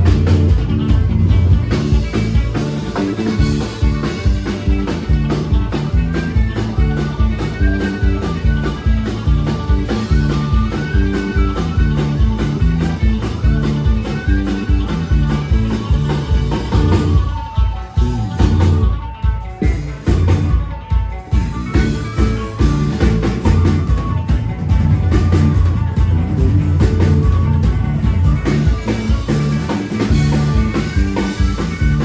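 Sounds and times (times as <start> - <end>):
live rock band playing: 0.0 - 32.0
small wind instrument melody: 2.4 - 20.7.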